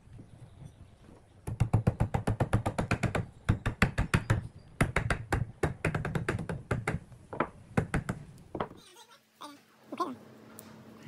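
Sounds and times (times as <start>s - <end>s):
hammer knocking on wooden branch: 1.4s - 8.8s.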